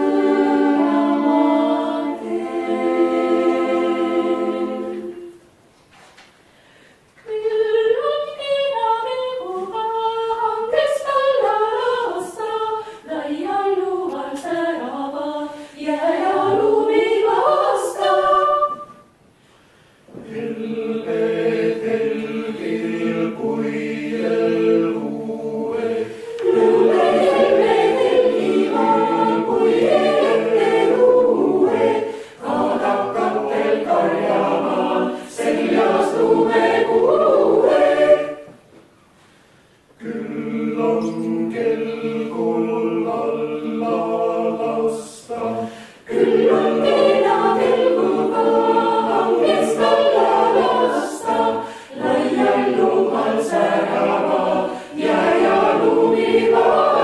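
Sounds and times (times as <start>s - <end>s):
choir singing: 0.0s - 5.5s, 7.2s - 19.1s, 20.1s - 38.8s, 40.0s - 57.0s
single melody line sung: 40.0s - 45.4s.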